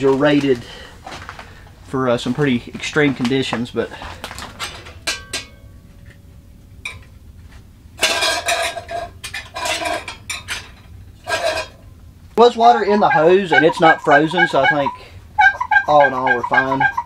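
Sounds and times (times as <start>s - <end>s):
metal lid and pot clattering: 4.6s - 5.7s, 6.8s - 7.1s, 8.0s - 11.8s.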